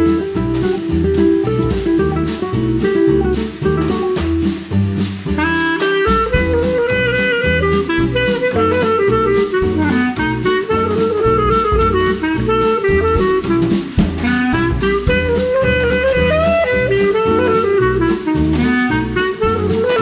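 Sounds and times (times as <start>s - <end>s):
instrumental background music: 0.0s - 20.0s
steady drum beat: 0.0s - 20.0s.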